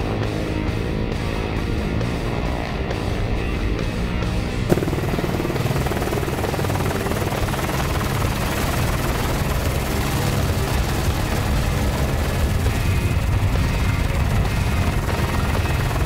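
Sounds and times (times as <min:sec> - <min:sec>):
helicopter rotor and engine: 0:03.7 - 0:16.0.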